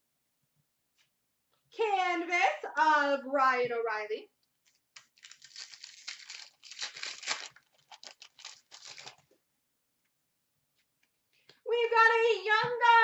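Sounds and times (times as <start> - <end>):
foil wrapper tearing and crinkling: 4.7 - 9.3.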